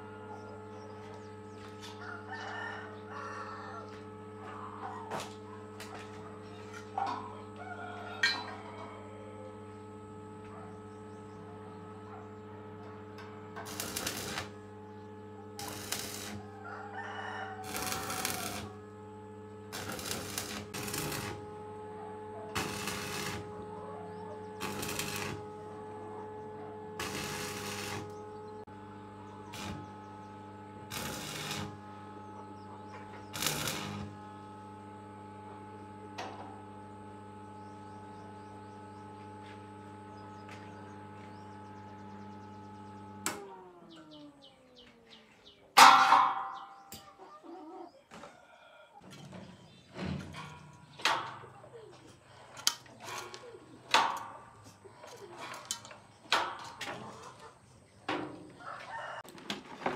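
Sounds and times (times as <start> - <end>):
machine humming: 0.0 - 47.0.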